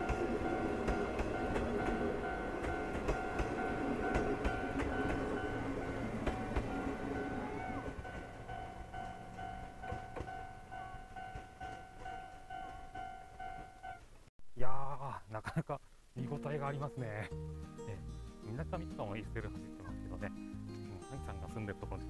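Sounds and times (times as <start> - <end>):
train carriages clicking over rails: 0.0 - 6.9, 7.8 - 13.0
level-crossing alarm ringing: 0.0 - 14.0.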